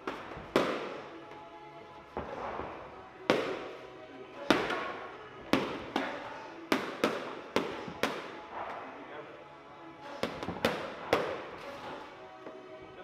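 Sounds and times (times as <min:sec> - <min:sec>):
boxing gloves slapping pads: 0:00.0 - 0:01.1, 0:03.2 - 0:03.8, 0:04.5 - 0:08.8, 0:10.2 - 0:11.6.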